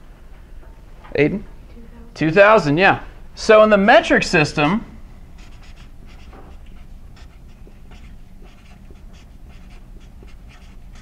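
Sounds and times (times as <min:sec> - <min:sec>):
marker scratching on whiteboard: 0:05.4 - 0:11.0.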